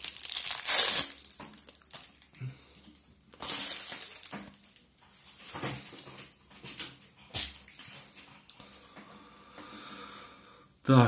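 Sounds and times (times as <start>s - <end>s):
plastic film crinkling and tearing: 0.0s - 6.0s, 7.4s - 8.2s.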